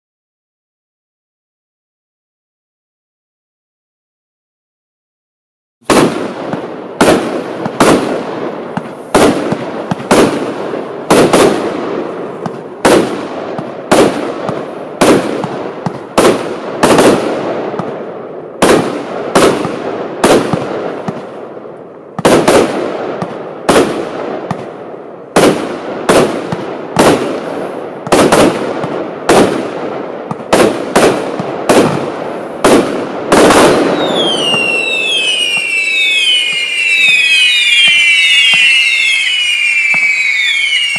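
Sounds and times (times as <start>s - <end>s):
firework bangs with crackle: 5.8s - 40.9s
firework whistles falling in pitch: 33.9s - 40.9s.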